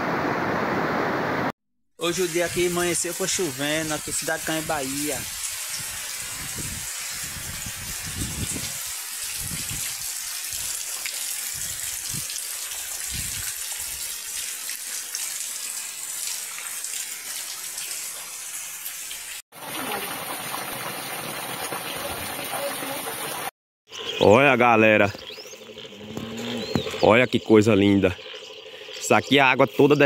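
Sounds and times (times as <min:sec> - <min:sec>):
steady rain hiss: 0:02.0 - 0:12.7
wind buffeting microphone: 0:05.8 - 0:09.9.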